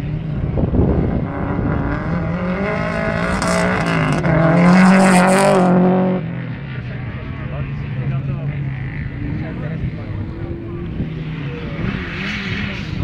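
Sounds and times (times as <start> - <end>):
rally car engine passing by: 0.0 - 13.0.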